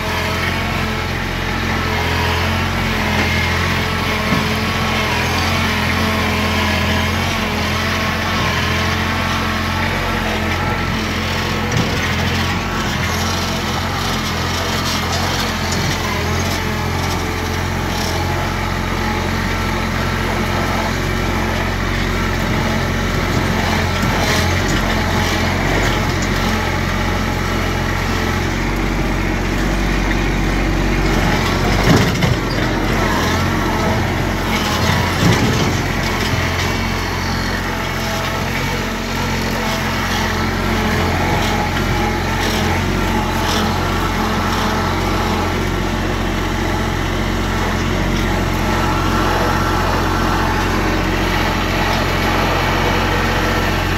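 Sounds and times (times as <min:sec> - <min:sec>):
tractor engine running: 0:00.0 - 0:53.9
knocks and rattles: 0:29.7 - 0:38.8.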